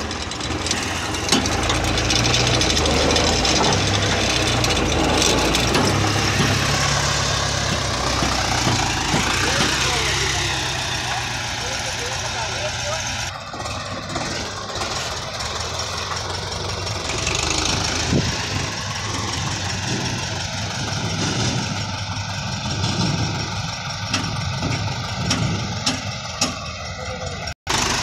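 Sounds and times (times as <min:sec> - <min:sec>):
tractor diesel engine running: 0:00.0 - 0:28.0.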